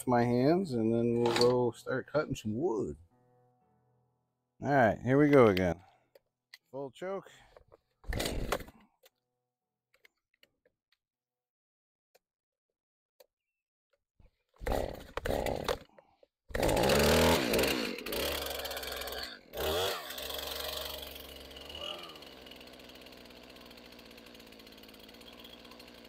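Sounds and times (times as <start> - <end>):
chainsaw starter cord pulls: 1.2 - 1.7, 7.5 - 9.2, 14.6 - 26.0
chainsaw engine running: 8.1 - 8.8, 14.6 - 26.0.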